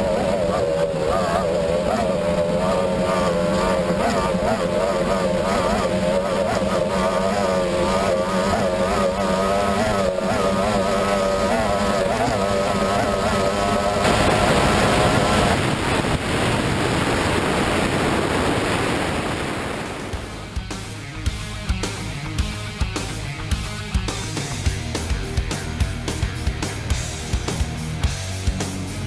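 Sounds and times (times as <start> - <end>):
spray and rushing water: 0.0 - 20.6
racing outboard engine: 0.0 - 29.0
wind noise: 12.6 - 20.6.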